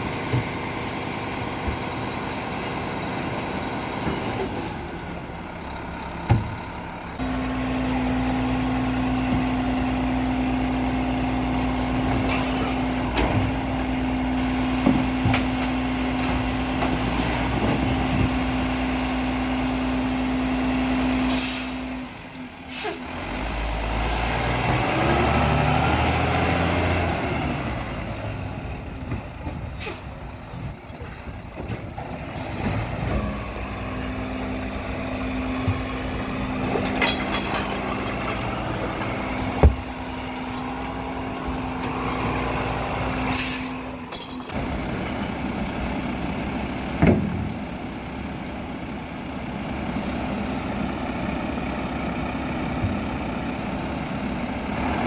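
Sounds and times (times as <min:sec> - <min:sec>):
diesel engine running: 0:00.0 - 0:55.0
air brake hisses: 0:21.3 - 0:21.9, 0:22.7 - 0:23.1, 0:43.3 - 0:44.0.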